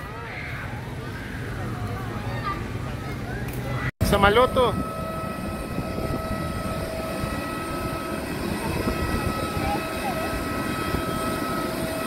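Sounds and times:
jet engine high whine: 0:03.8 - 0:12.0
jet engine low rumble: 0:04.0 - 0:12.0.

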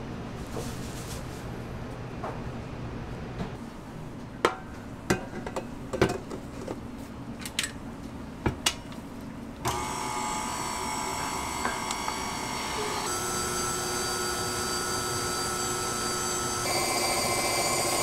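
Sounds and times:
stand mixer motor whining: 0:09.7 - 0:18.0.

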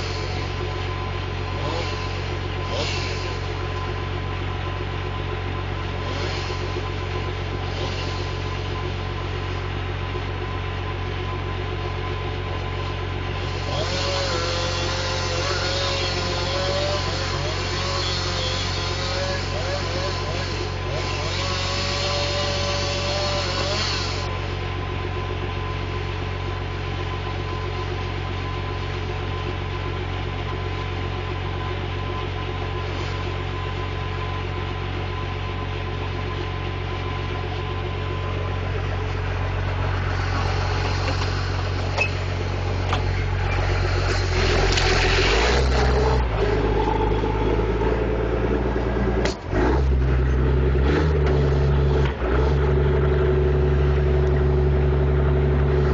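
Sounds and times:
diesel engine idling and revving: 0:00.0 - 0:55.9.

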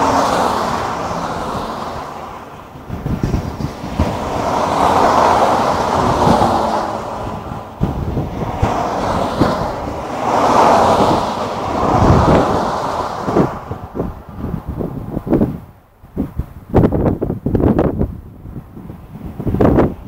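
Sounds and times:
cars passing at speed: 0:00.0 - 0:20.0
wind buffeting microphone: 0:00.0 - 0:20.0.

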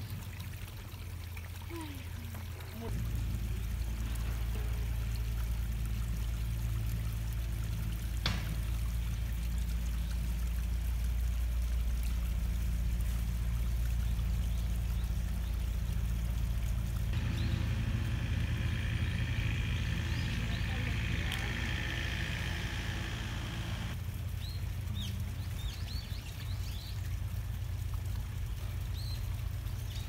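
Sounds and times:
stream trickling over rocks: 0:00.0 - 0:30.0
steady low rumble: 0:16.3 - 0:24.0.

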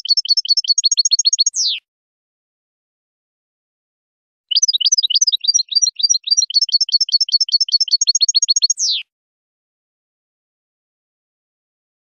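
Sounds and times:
bird singing high chirps: 0:00.0 - 0:01.8, 0:04.5 - 0:09.1.

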